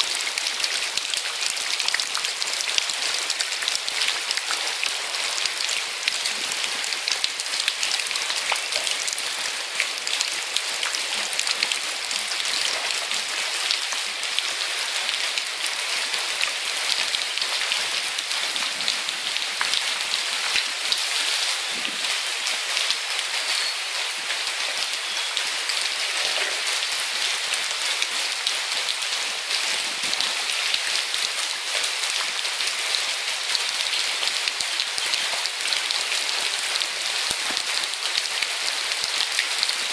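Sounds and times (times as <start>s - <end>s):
heavy rain on pavement and trees: 0.0s - 39.9s.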